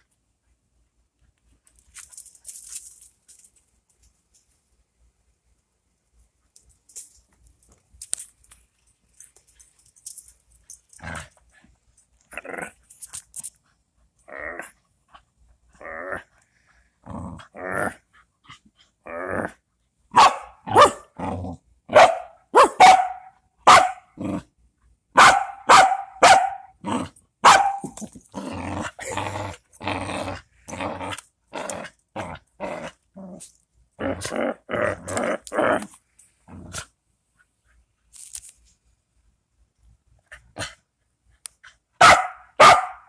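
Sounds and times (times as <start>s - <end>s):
small dog growling and barking: 12.3s - 12.9s, 14.2s - 16.4s, 17.0s - 22.1s, 23.8s - 24.5s, 25.7s - 36.9s.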